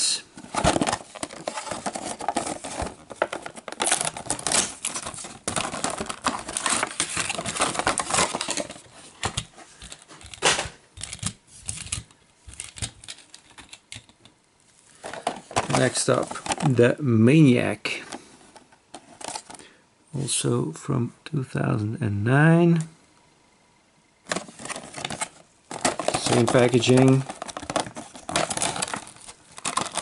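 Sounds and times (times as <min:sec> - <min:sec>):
plastic packaging crinkling: 0:00.0 - 0:14.1, 0:14.9 - 0:16.8, 0:24.3 - 0:30.0.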